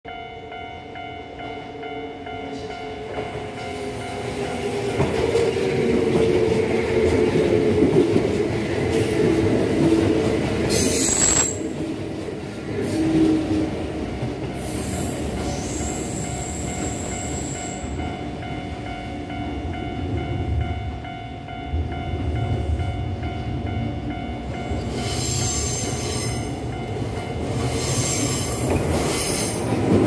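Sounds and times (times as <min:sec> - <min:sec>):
train wheel and rail noise: 0:00.1 - 0:30.0
train wheels squealing: 0:10.7 - 0:11.8, 0:14.6 - 0:17.9, 0:24.9 - 0:26.6, 0:27.6 - 0:29.6.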